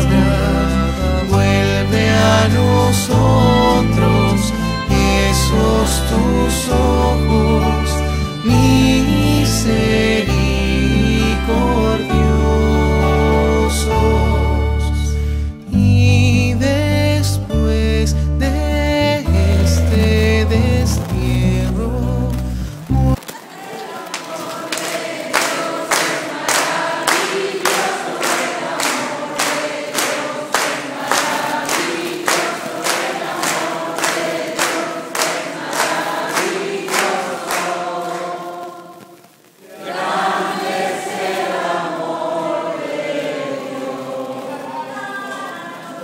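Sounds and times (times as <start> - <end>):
congregation singing: 0.0 - 17.7, 18.4 - 22.4, 23.1 - 46.0
people clapping in time: 22.9 - 40.7.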